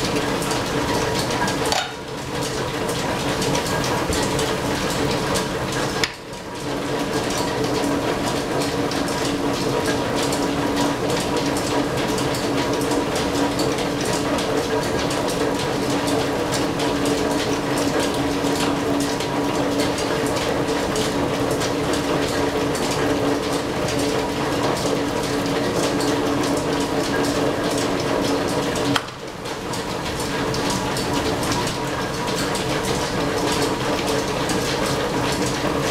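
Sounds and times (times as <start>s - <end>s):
lathe running: 0.0s - 12.4s.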